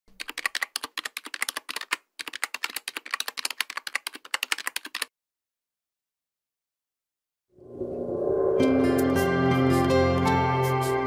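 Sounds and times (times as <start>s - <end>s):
rapid keyboard typing: 0.1s - 5.1s.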